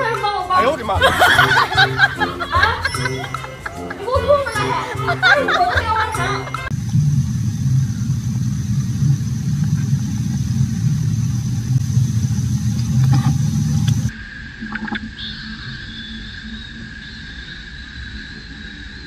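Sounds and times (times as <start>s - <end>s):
low engine rumble: 0.0s - 14.1s
high steady buzzing: 0.5s - 14.1s
thin high whine: 1.1s - 16.7s.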